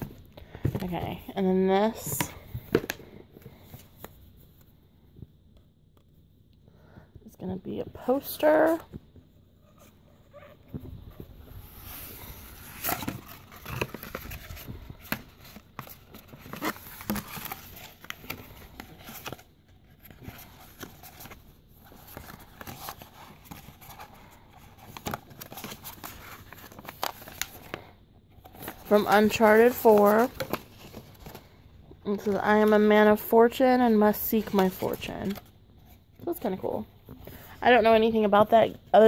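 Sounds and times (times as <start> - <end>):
stiff paper rustling: 9.7 - 32.9.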